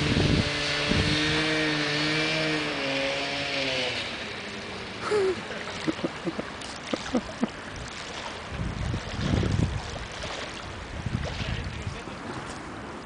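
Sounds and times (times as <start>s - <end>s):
wind on microphone: 0.0s - 2.2s, 7.7s - 13.0s
waves washing against riverbank: 0.0s - 13.0s.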